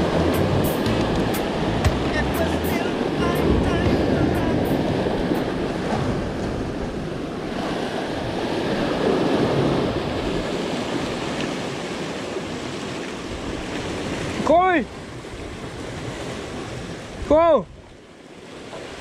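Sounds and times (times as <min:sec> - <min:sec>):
wind buffeting microphone: 0:00.0 - 0:11.4
surf breaking on rocks: 0:00.0 - 0:17.4.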